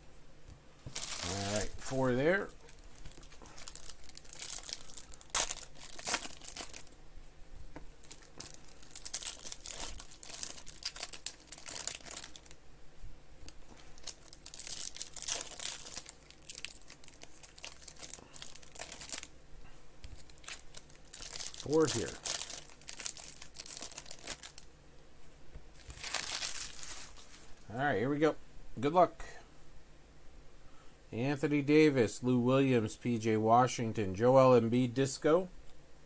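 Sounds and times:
foil wrappers crinkling and tearing: 0.9s - 7.0s, 8.0s - 12.6s, 13.7s - 19.3s, 20.0s - 24.7s, 25.8s - 27.6s.

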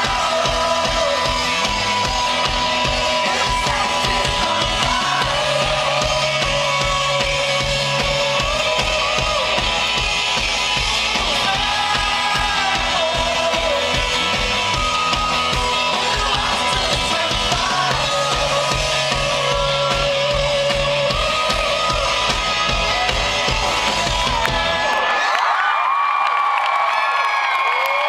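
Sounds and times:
steady drum beat: 0.0s - 24.9s
electric guitars: 0.0s - 25.2s
live rock band: 0.0s - 25.3s.

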